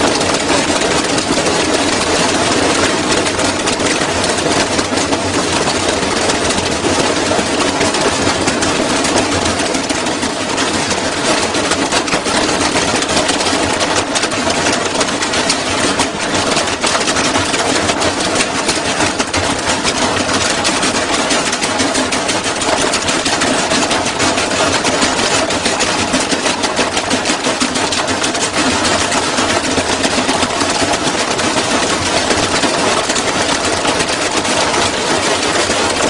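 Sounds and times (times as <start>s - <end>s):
washing machine spinning and rattling: 0.0s - 36.0s.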